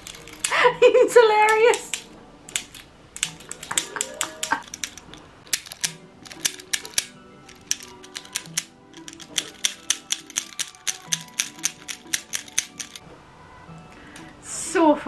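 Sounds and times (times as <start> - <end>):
faint background music: 0.0 - 15.0
plastic pen mechanism clicking: 1.5 - 13.0.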